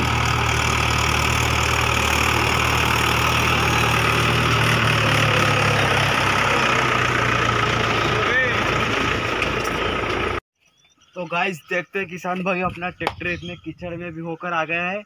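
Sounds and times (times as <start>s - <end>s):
tractor diesel engine running: 0.0s - 10.4s.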